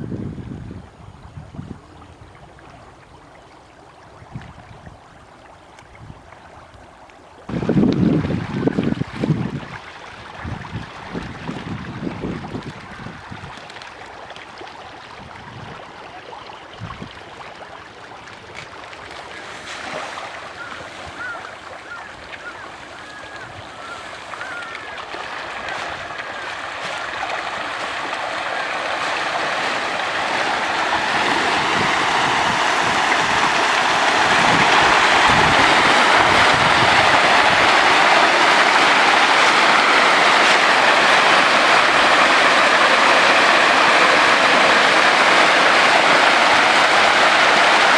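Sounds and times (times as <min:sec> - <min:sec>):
fish thrashing and splashing: 0:23.6 - 0:47.9.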